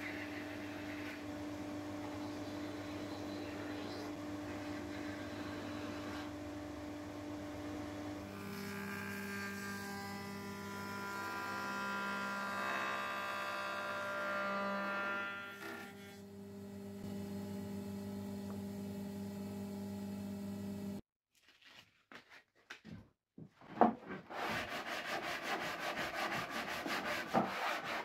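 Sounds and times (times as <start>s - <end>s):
electric motor humming: 15.6s - 21.0s.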